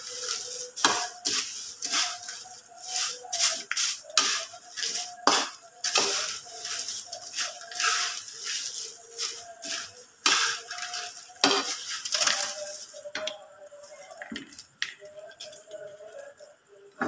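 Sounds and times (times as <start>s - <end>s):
metal spatula scraping a wok: 0.0s - 13.0s.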